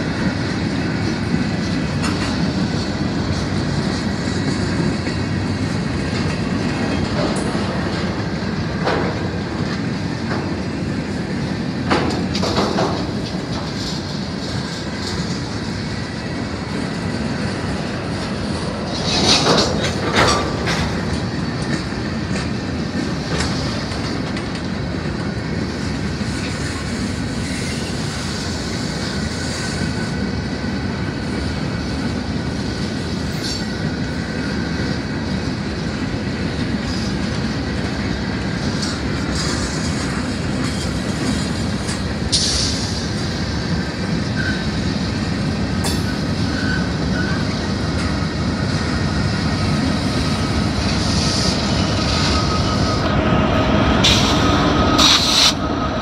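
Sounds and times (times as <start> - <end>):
freight train wheels clattering: 0.0 - 56.0.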